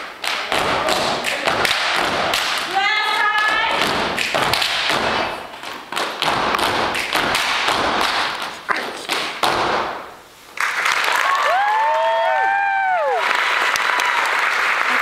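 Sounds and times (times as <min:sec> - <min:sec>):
stomping and clapping: 0:00.0 - 0:12.1
audience applause: 0:10.6 - 0:15.0
whoops and cheers: 0:11.1 - 0:14.4.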